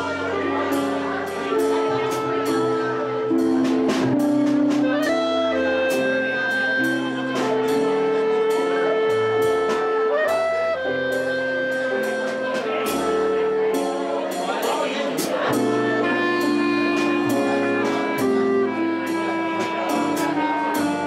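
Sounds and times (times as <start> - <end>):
cymbal and drum strokes: 0.0 - 10.0
clarinet melody: 0.0 - 21.0
piano: 0.0 - 21.0
plucked upright bass: 0.0 - 21.0.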